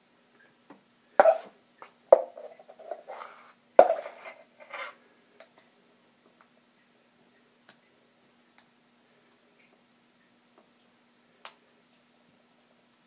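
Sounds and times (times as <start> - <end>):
knife scraping a metal bowl: 2.4 - 5.0.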